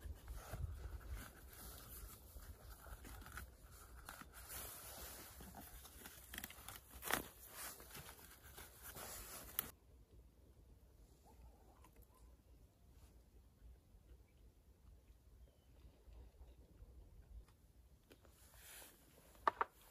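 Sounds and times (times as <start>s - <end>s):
fabric rustling and scraping: 0.0s - 9.8s.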